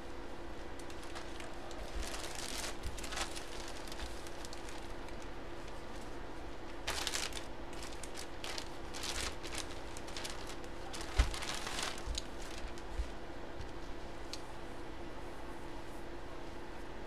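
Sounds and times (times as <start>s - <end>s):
plastic bag crinkling: 0.8s - 6.1s, 6.7s - 13.2s.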